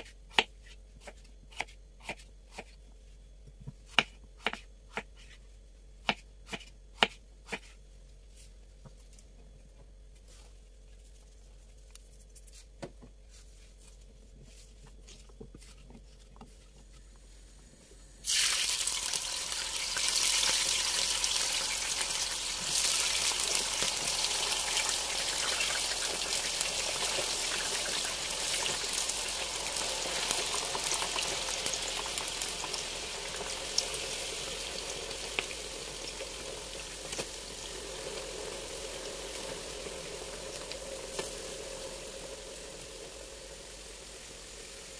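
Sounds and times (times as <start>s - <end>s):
food sizzling in hot oil: 18.2s - 44.9s.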